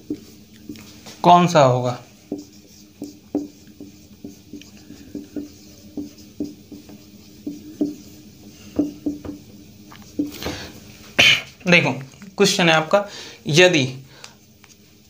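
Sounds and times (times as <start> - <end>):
marker squeaking on whiteboard: 1.8 - 9.4.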